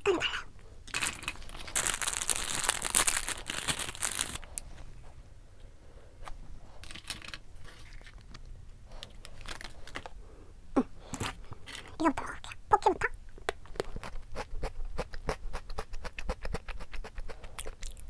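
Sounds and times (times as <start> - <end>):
plastic wrapper crinkling and tearing: 0.9 - 4.7, 9.0 - 10.2.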